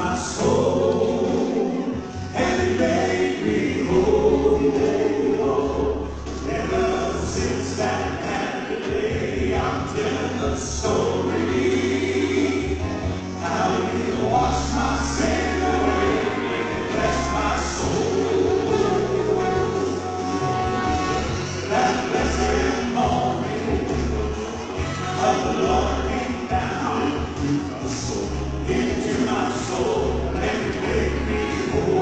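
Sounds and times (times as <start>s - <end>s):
bass line: 0.0s - 32.0s
male quartet singing in harmony: 0.0s - 32.0s.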